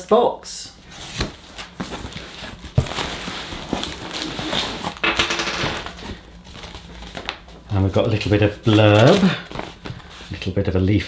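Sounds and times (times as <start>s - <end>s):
cardboard and paper rustling: 0.9s - 5.0s, 5.7s - 10.4s.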